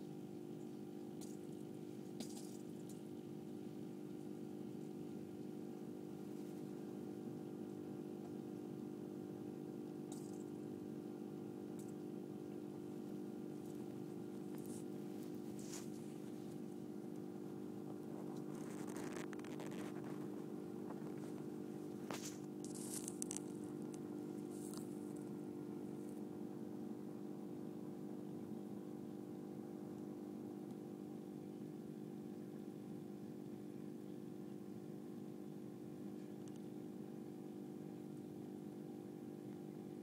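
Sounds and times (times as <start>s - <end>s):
aquarium equipment humming: 0.0s - 40.0s
light clicks and rustles: 17.9s - 25.4s.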